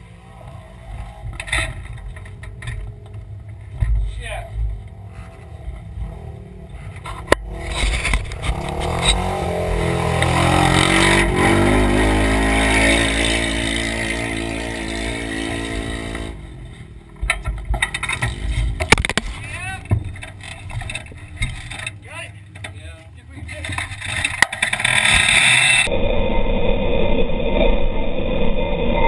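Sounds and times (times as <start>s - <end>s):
vehicle engine accelerating: 0.0s - 19.4s
sharp knocks and rattles: 1.0s - 6.1s, 6.7s - 25.9s.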